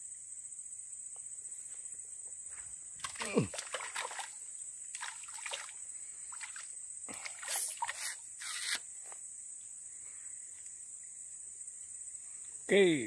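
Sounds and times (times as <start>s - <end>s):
fish splashing in water: 3.0s - 4.4s, 5.0s - 8.0s.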